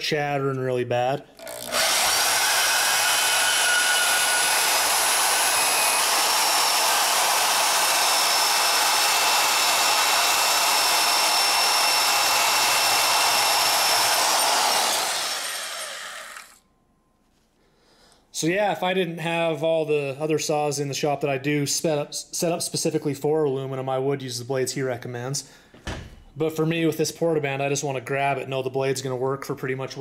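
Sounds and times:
bandsaw cutting metal tube: 1.4 - 16.6.

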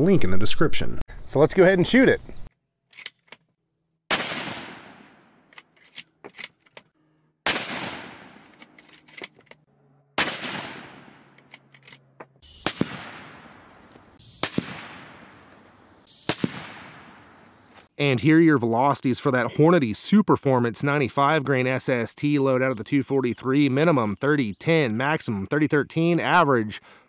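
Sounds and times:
rifle shots with echo: 4.1 - 5.4, 7.4 - 8.6, 10.2 - 11.4, 12.6 - 13.6, 14.4 - 15.4, 16.2 - 17.3
quieter sharp cracks: 4.1 - 6.8, 7.4 - 17.9.

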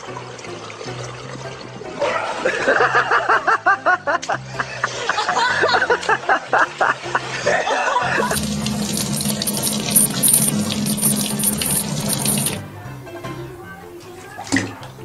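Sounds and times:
water running from tap: 8.2 - 12.6.

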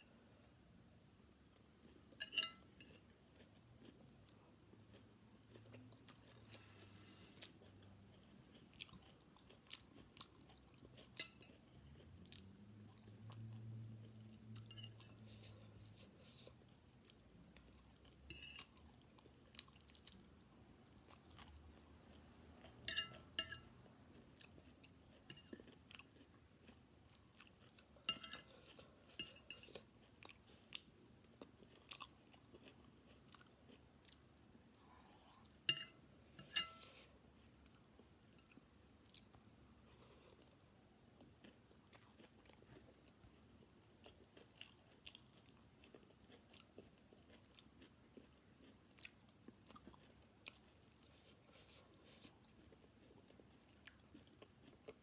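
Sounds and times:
faint chewing: 1.4 - 55.0
fork clinking on plate: 2.2 - 2.7, 22.8 - 23.6, 28.1 - 28.5, 35.7 - 36.9.

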